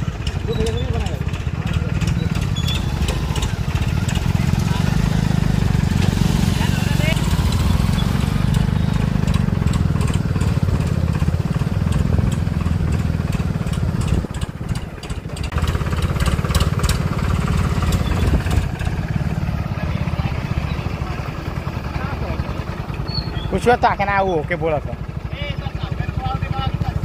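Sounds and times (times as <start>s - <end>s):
tractor diesel engine running: 0.0s - 27.0s.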